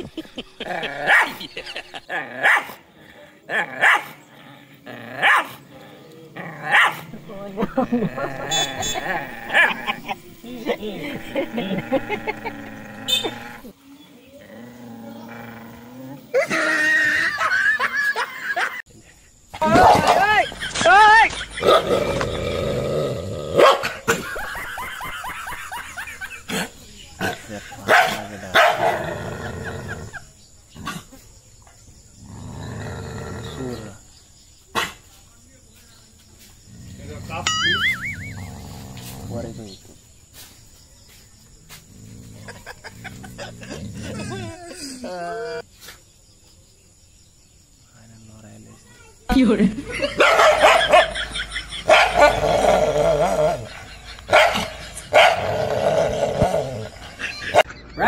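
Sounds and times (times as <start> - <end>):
dog barking: 1.0 - 1.4, 2.4 - 2.8, 3.8 - 4.2, 5.2 - 5.6, 6.7 - 7.1, 8.5 - 9.9, 23.6 - 24.0, 27.9 - 29.1, 50.0 - 52.4, 54.3 - 55.5
dog growling: 3.5 - 13.7, 14.4 - 16.7, 21.6 - 24.1, 32.2 - 34.0, 36.7 - 37.5, 38.2 - 39.8, 41.9 - 45.6, 51.8 - 57.7
dog snarling: 41.9 - 44.6.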